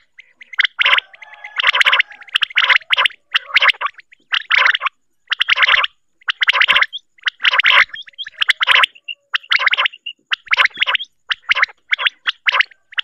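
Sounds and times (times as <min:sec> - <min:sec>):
quail calling: 0:00.0 - 0:13.0.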